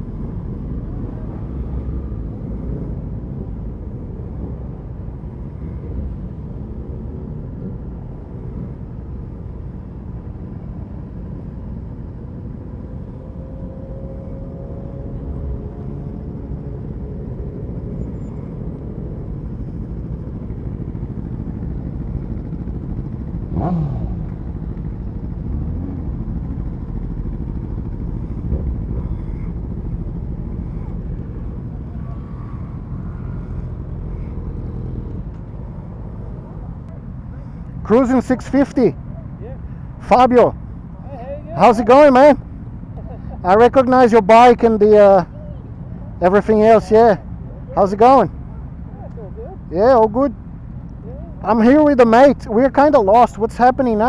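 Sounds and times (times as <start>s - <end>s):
motorcycle engine: 0.0s - 54.0s
surrounding motorcycle engines: 0.0s - 54.0s.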